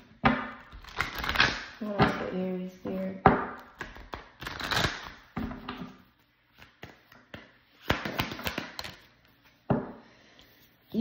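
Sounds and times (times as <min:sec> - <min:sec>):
cards tapping and flicking: 0:06.5 - 0:09.1.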